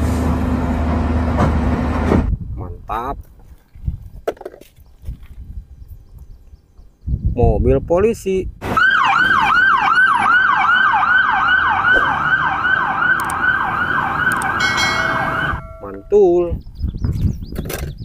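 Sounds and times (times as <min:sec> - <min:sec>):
police siren yelping: 0:08.7 - 0:15.9.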